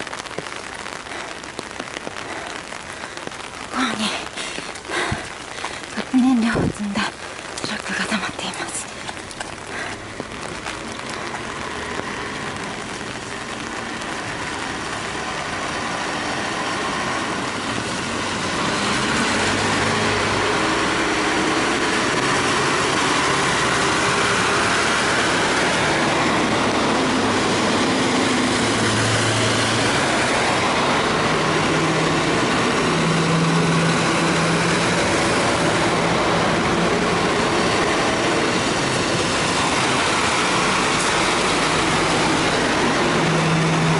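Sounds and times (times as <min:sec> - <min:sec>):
truck engines: 0:00.0 - 0:43.9
tyres hissing on wet road: 0:00.0 - 0:43.9.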